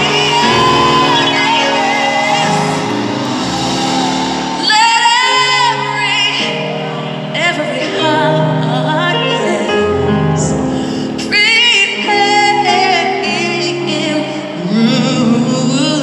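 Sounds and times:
woman singing solo: 0.0s - 9.9s
choir holding chords: 0.0s - 10.4s.

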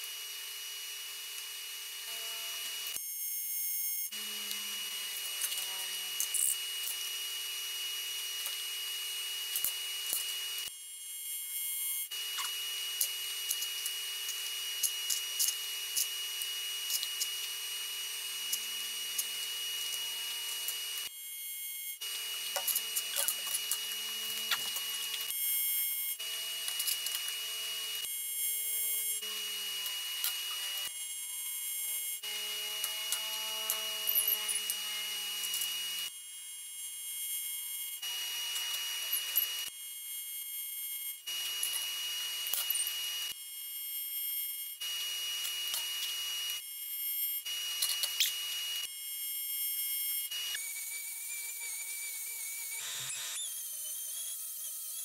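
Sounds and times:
welding arc hissing and crackling: 22.1s - 25.4s.

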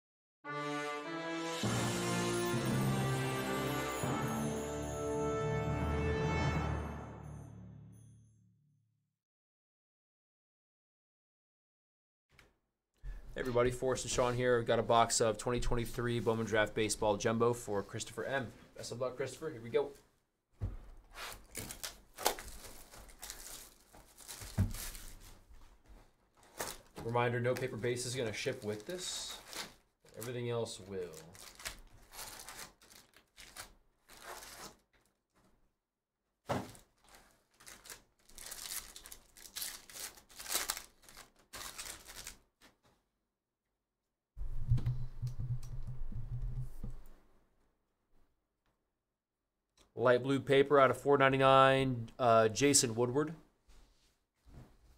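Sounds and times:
plastic wrap crinkling and ripping: 21.2s - 25.4s, 26.4s - 35.2s, 36.5s - 42.7s.

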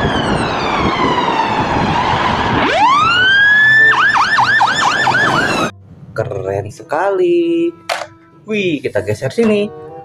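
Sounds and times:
fire engine siren: 0.0s - 5.8s
engine and road noise: 0.0s - 9.1s.

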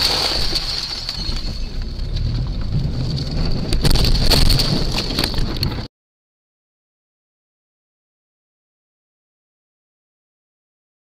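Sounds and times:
car crash knocks and clatters: 0.0s - 5.9s
road and wind rumble in car: 1.1s - 5.9s.

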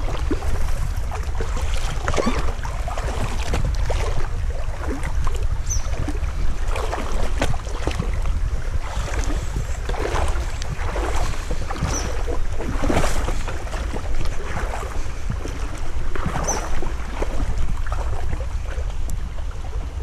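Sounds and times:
wind rumbling on microphone: 0.0s - 20.0s.

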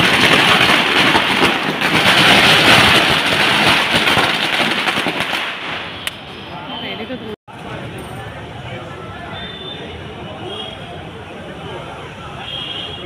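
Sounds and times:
firecrackers crackling: 0.0s - 7.9s.

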